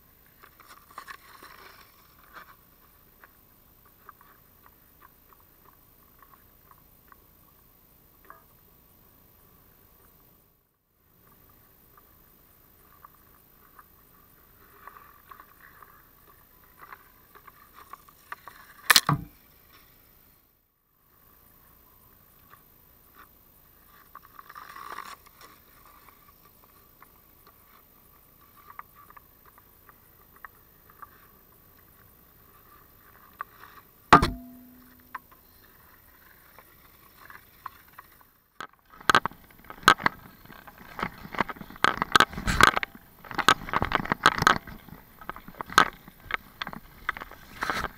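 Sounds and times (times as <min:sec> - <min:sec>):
sharp knock with ring: 0:34.2 - 0:35.1.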